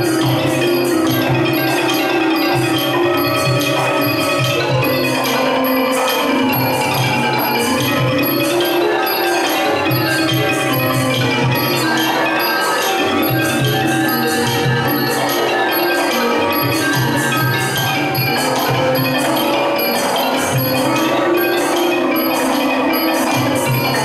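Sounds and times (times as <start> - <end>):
ringing gong circles: 0.0 - 24.0
xylophone mallet notes: 0.0 - 24.0.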